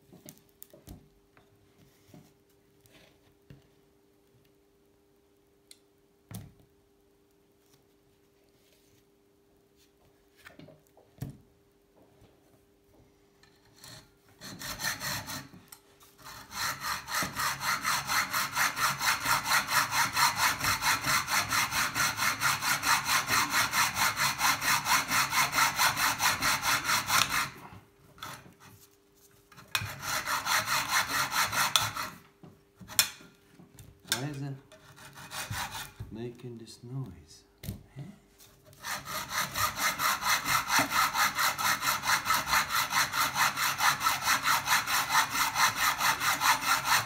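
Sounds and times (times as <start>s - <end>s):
hacksaw cutting metal: 13.6s - 15.6s, 16.2s - 27.6s, 29.6s - 32.2s, 34.1s - 36.0s, 38.8s - 47.0s.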